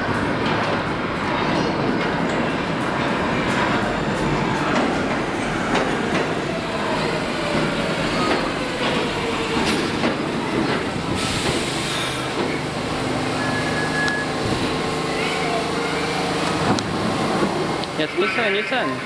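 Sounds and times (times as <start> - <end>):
train whine: 0.0 - 18.2
subway train wheels clacking: 0.0 - 19.0
air brake hiss: 11.2 - 12.2.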